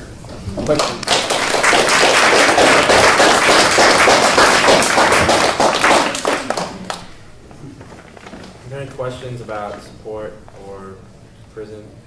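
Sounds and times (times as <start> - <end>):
audience applauding: 0.6 - 7.2.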